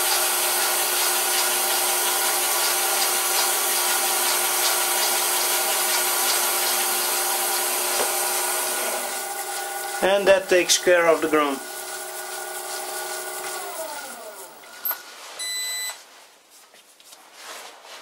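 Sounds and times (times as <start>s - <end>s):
chips hissing off cutting tool: 0.0s - 14.7s
metal lathe running: 0.4s - 14.7s.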